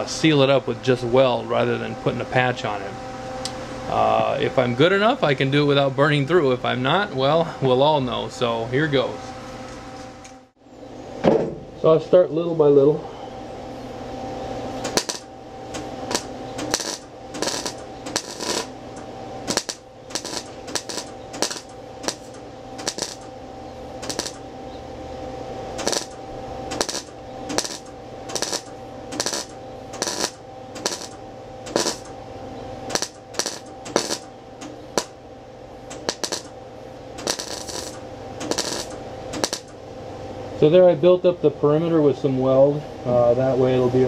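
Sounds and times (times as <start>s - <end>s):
welder hum: 0.0s - 43.8s
welding arc bursts: 14.8s - 23.4s, 24.0s - 24.6s, 25.7s - 32.2s, 32.8s - 34.3s, 34.9s - 35.2s, 35.9s - 39.8s.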